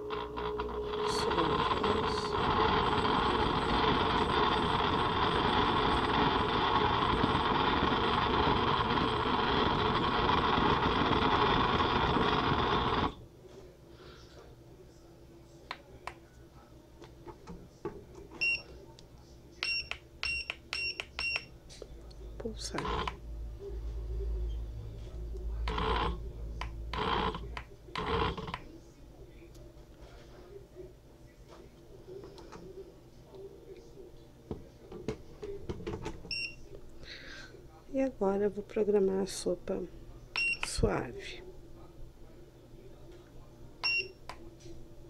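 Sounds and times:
soup maker blade motor: 0:00.0 - 0:13.2, 0:22.6 - 0:23.2, 0:25.6 - 0:28.6.

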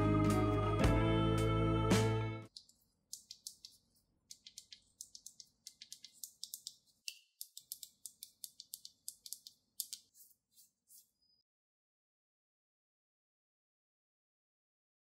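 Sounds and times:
fingers tapping phone screen: 0:02.5 - 0:11.1.

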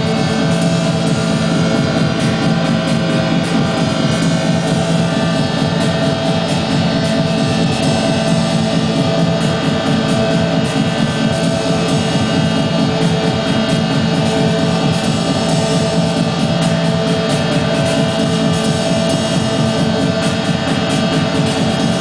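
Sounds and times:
sustained droning tones: 0:00.0 - 0:22.0
wall of distorted noise: 0:00.0 - 0:22.0.

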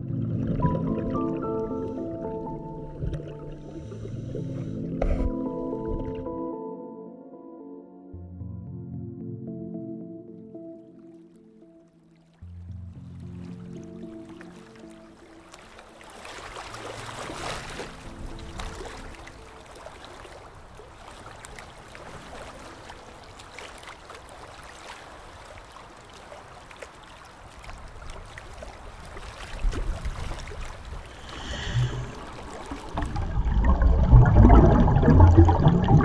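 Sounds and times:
faint underwater hiss: 0:01.6 - 0:05.4, 0:30.8 - 0:33.8
diver's air bubbles gurgling: 0:30.9 - 0:36.0.

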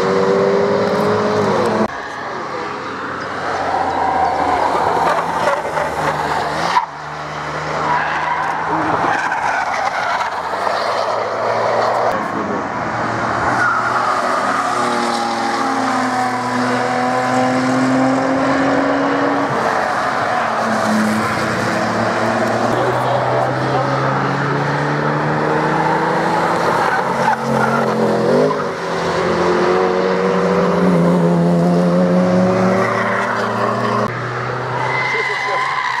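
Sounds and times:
race car engine: 0:00.0 - 0:36.0
tyres squealing: 0:34.7 - 0:36.0.

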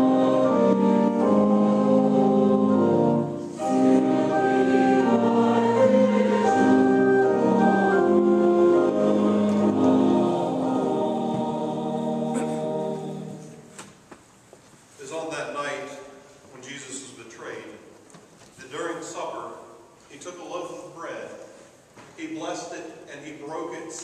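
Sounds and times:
choir singing held chords: 0:00.0 - 0:13.7.

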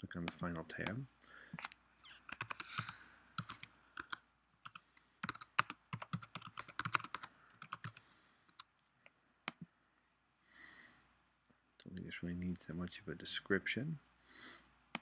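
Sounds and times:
typing on a computer keyboard: 0:02.2 - 0:08.6.

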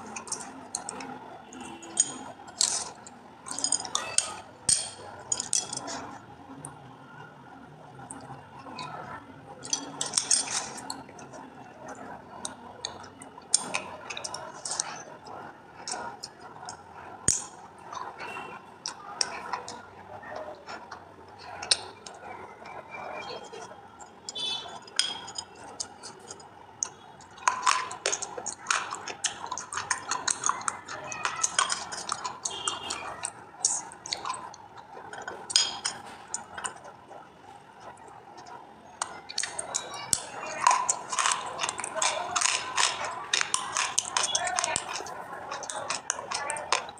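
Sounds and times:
wet squishing and crackling: 0:08.0 - 0:46.9
dried clay crunching: 0:39.3 - 0:46.9.

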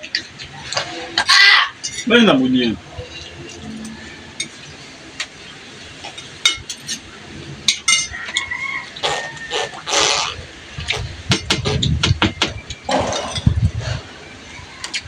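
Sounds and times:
cutlery clinking on plates: 0:06.0 - 0:07.1, 0:07.7 - 0:08.5, 0:12.9 - 0:13.6.

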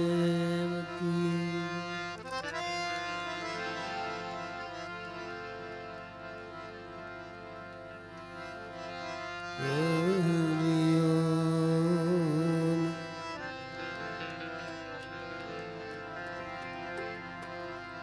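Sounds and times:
harmonium chords: 0:00.0 - 0:18.0
person singing long note: 0:09.6 - 0:13.1.

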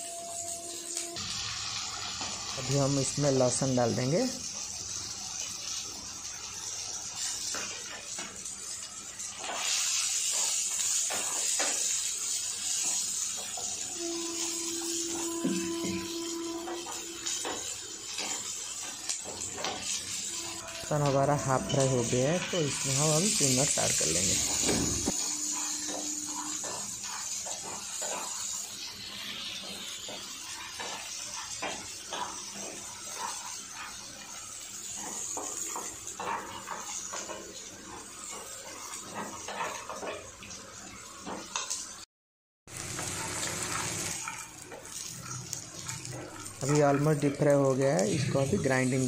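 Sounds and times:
chillies and garlic sizzling in oil: 0:00.0 - 0:42.1, 0:42.7 - 0:49.0
wooden spatula scraping a pan: 0:24.4 - 0:40.3.

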